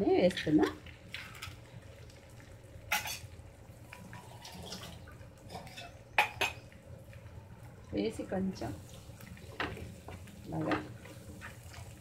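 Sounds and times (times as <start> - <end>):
eggs sizzling in a pan: 0.0 - 12.0
kitchen utensils clattering: 4.5 - 6.6.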